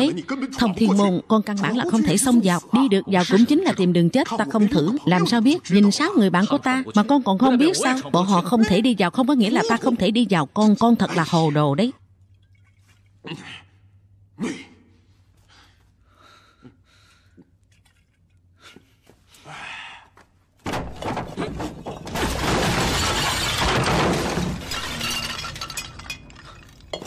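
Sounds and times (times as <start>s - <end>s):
jars shattering: 20.9s - 27.0s.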